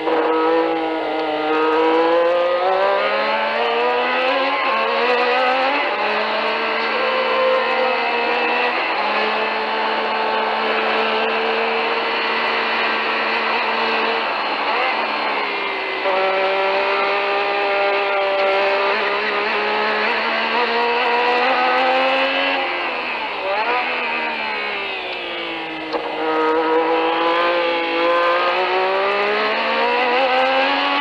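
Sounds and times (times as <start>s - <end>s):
racing car engine at high revs: 0.0s - 31.0s.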